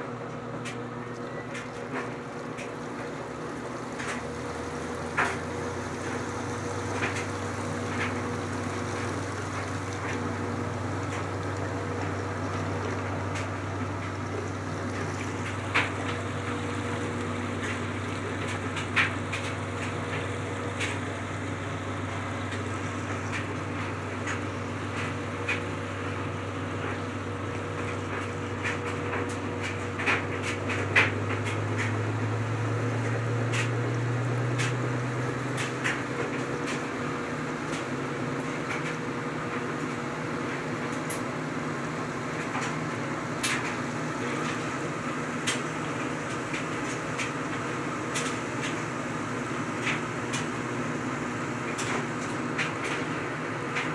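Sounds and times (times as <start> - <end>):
drain pump humming: 0.0 - 53.9
steady machine hum: 0.0 - 53.9
water draining into sink: 1.2 - 38.4.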